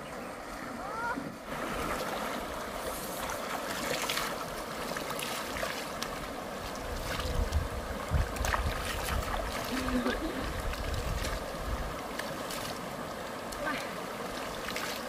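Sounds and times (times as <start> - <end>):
stream water rushing: 0.0 - 15.0
people splashing water: 0.8 - 15.0.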